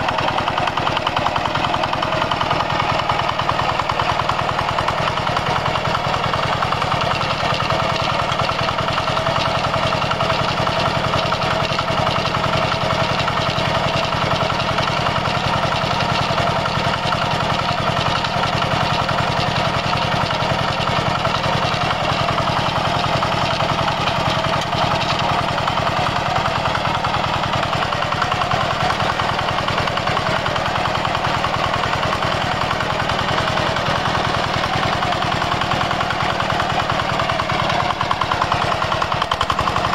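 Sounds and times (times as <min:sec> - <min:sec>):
diesel engine thumping: 0:00.0 - 0:39.9.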